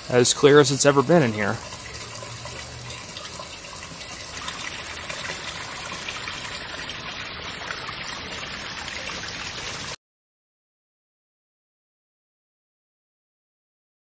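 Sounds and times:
water splashing into pond: 0.1 - 10.0.

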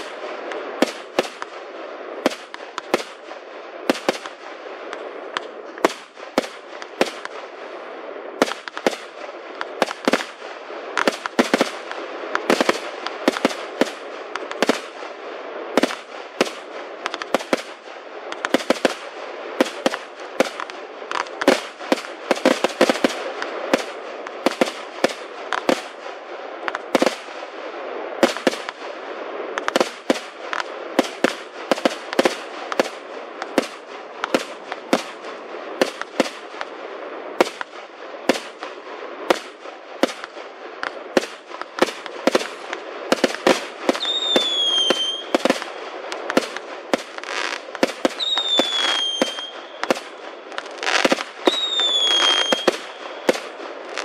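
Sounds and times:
fireworks bangs and pops: 0.0 - 7.8, 8.4 - 54.0
crackling hiss: 0.0 - 54.0
falling firework whistle: 44.0 - 45.5, 47.2 - 50.0, 50.8 - 53.4.

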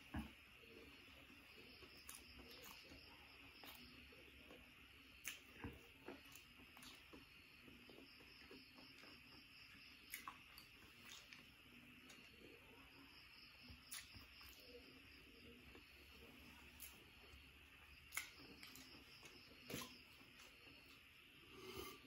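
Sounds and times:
mouth clicks while chewing: 5.2 - 7.1, 10.1 - 11.4, 18.1 - 18.9.

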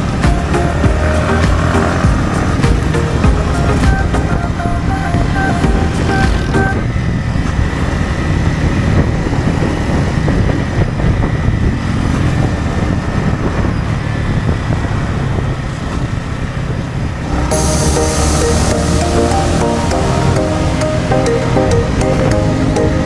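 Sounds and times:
motorcycle engine running steadily: 0.0 - 23.0
wind and road rush: 0.0 - 23.0.

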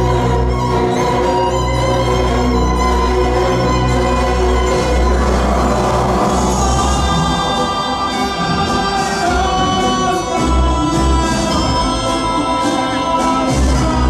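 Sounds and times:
tango music: 0.0 - 14.0
man singing: 5.5 - 14.0.

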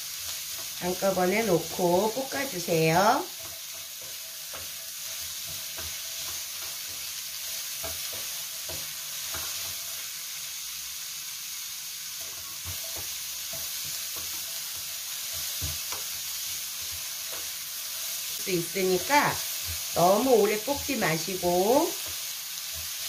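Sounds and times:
vegetables sizzling in oil: 0.0 - 23.0
spoon scraping and tapping pan: 3.3 - 10.0, 12.2 - 17.6.

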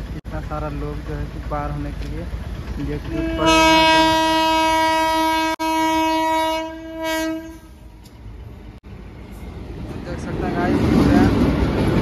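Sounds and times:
locomotive horn blast: 3.0 - 7.8.

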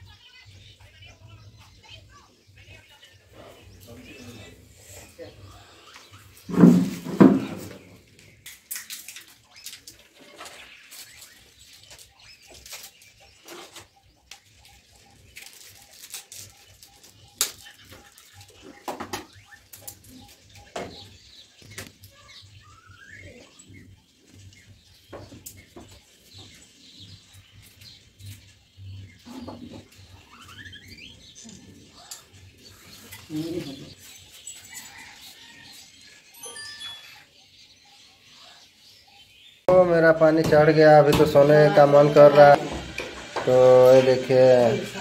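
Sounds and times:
packaging rustling: 14.8 - 18.6.

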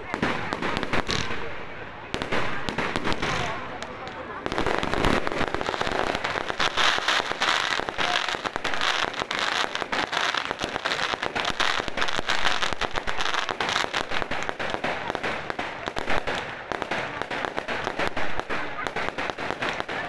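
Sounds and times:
fireworks bursting and crackling: 0.0 - 20.0.

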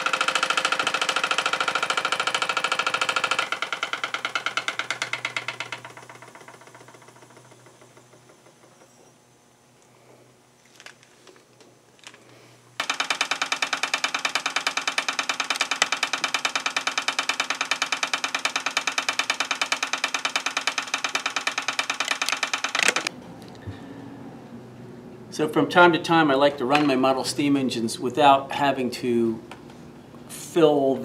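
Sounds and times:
model steam engine running: 0.0 - 7.8.

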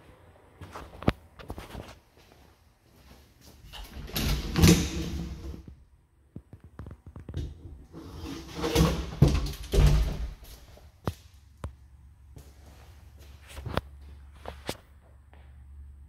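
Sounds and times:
closet door rubbing and knocking: 3.8 - 5.6.

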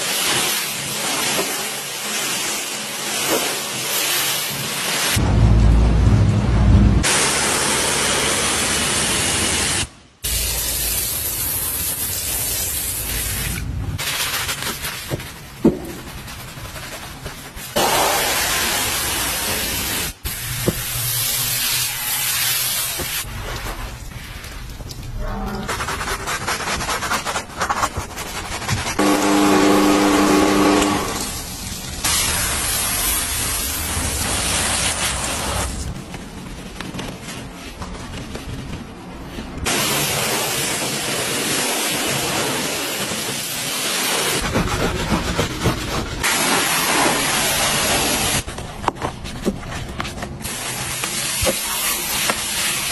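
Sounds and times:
pressure washer foam spray hiss: 7.1 - 14.9, 17.7 - 23.3, 32.0 - 35.8, 39.7 - 44.4, 46.2 - 48.4, 50.4 - 52.9
scrubbing: 14.0 - 18.1, 25.3 - 30.9
foam sprayer hissing: 17.6 - 23.3, 29.0 - 35.8, 39.7 - 44.4.

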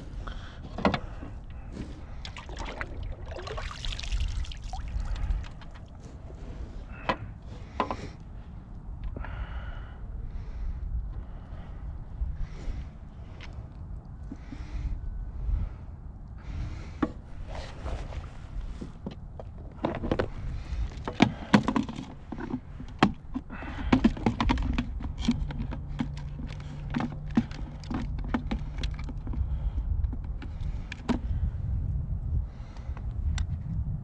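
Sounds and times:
wind rumble on microphone: 0.0 - 34.0
plastic box clicks and knocks: 21.0 - 29.4.

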